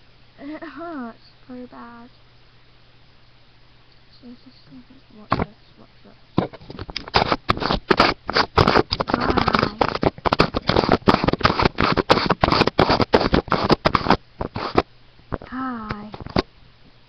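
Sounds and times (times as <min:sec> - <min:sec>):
microphone handling noise: 0:06.4 - 0:16.5.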